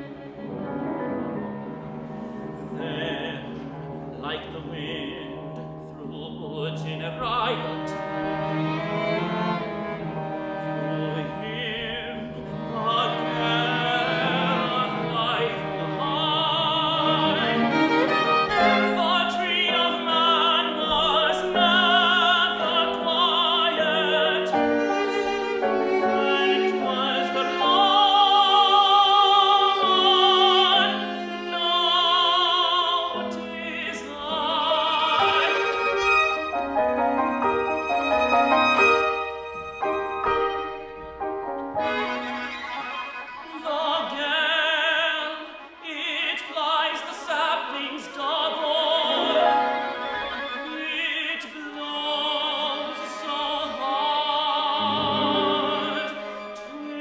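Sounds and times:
bowed strings: 0.0s - 57.0s
tenor singing with vibrato: 1.7s - 40.9s, 41.8s - 57.0s.

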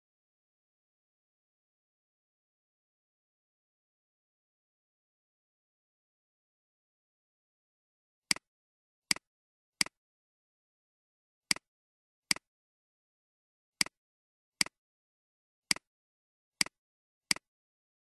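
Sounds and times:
computer mouse clicks: 16.6s - 17.5s.

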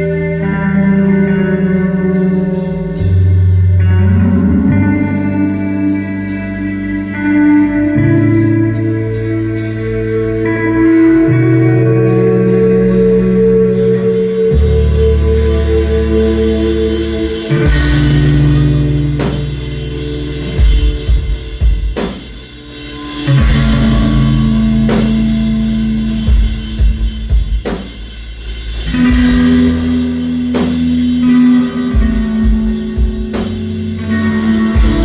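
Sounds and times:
electric guitars and bass: 0.0s - 35.0s
drum and cymbal hits: 17.2s - 35.0s.

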